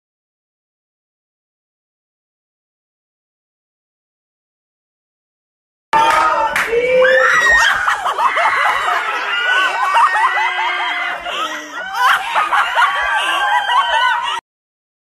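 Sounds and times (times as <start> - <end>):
women shrieking and laughing: 6.8 - 14.4.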